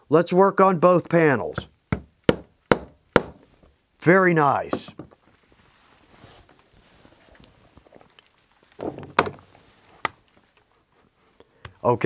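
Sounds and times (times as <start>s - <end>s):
sharp knocks: 1.9s - 3.4s
leather sliding rustle: 5.3s - 8.0s, 9.4s - 10.8s.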